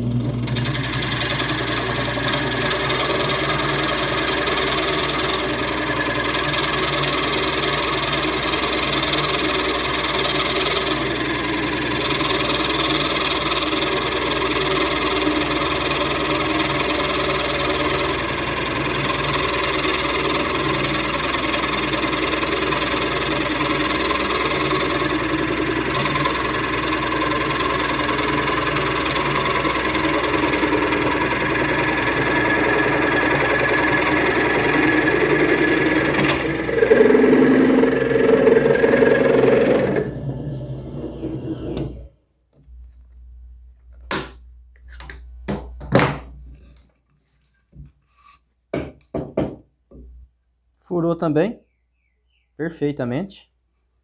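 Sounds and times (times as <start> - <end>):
drill press running: 0.0 - 43.4
spade bit boring into wood: 0.5 - 42.0.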